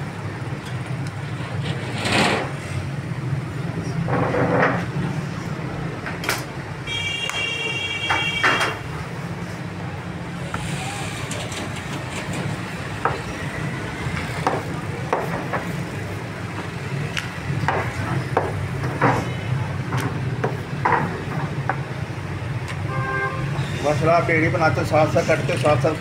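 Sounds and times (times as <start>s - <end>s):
street traffic hum: 0.0s - 26.0s.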